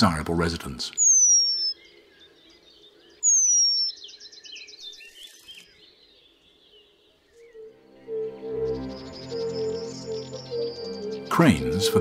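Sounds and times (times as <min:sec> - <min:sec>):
bird trill: 0:00.9 - 0:12.0
soft bird twittering: 0:00.9 - 0:12.0
bird whistling call: 0:03.2 - 0:04.2, 0:07.5 - 0:12.0.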